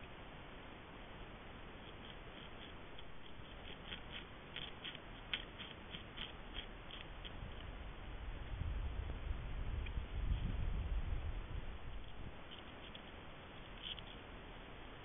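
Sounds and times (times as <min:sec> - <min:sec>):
steady hiss: 0:00.0 - 0:15.0
beaver gnawing with crunching clicks: 0:01.7 - 0:07.8, 0:11.8 - 0:14.3
low rumble: 0:07.4 - 0:12.4.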